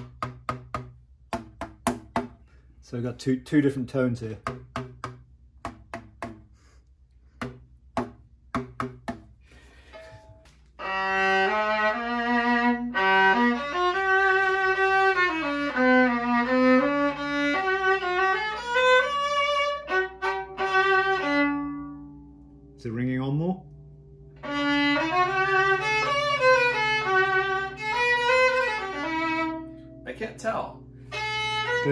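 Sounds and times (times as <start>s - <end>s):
light taps on drum-skin panels: 4.4s - 6.4s
bowed fiddle tune: 10.8s - 23.0s, 24.3s - 31.9s.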